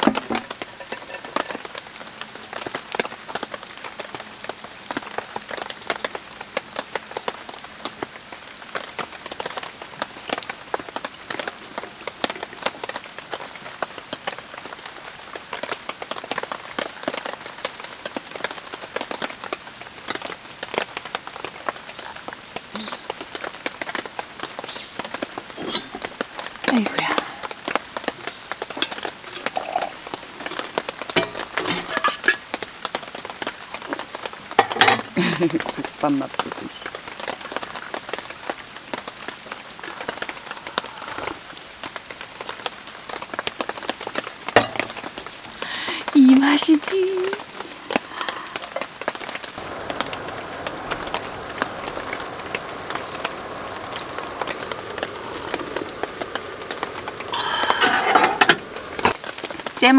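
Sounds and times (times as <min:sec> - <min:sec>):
rain pattering on a tarp: 0:00.0 - 0:59.9.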